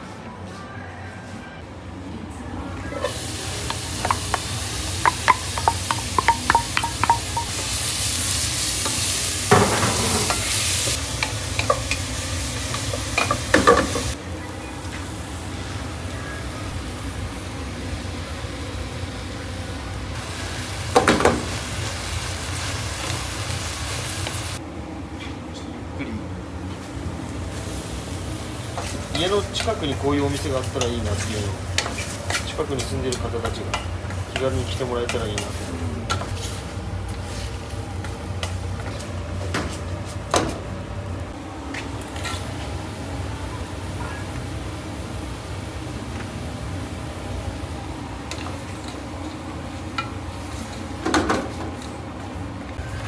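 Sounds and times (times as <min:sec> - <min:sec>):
dishes and utensils clinking: 0:03.0 - 0:07.6.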